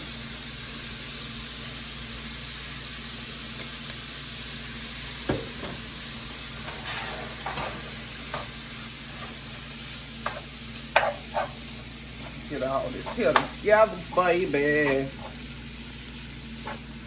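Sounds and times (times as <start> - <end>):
food sizzling in a frying pan: 0.0 - 17.0
spatula scraping a pan: 6.6 - 7.8, 10.2 - 11.8.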